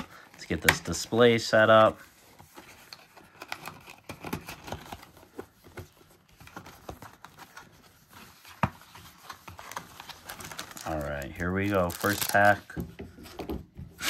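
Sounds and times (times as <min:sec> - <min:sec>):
foil packs rustling: 0:09.2 - 0:12.7.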